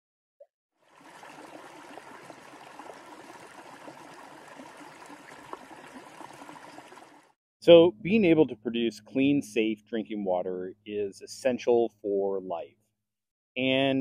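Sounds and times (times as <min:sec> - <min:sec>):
creek water flowing over rocks: 0:00.8 - 0:07.4.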